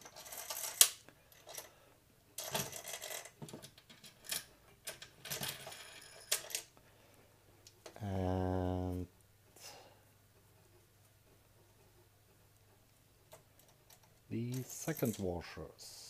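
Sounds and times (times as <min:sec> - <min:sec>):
metal spacers clinking: 0:13.3 - 0:15.5.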